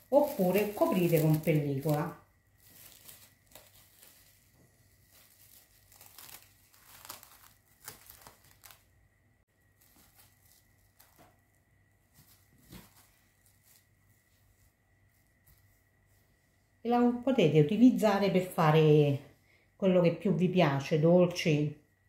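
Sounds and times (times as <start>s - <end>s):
cling film crinkling: 0.0s - 9.0s, 9.6s - 14.0s.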